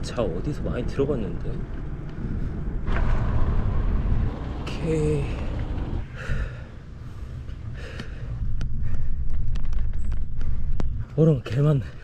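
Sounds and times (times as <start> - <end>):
wind rumble on microphone: 0.0 - 12.0
heavy breathing: 6.0 - 9.4.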